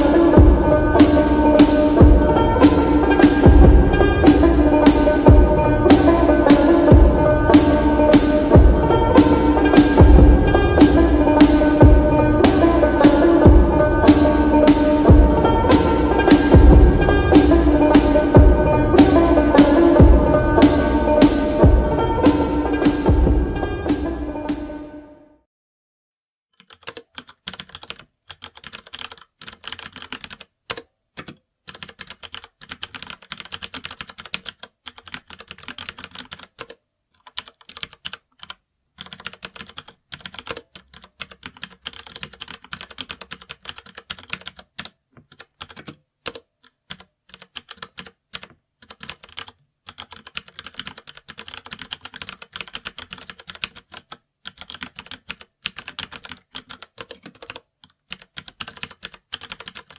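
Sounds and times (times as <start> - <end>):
keyboard typing: 4.2 - 16.7, 26.6 - 59.9.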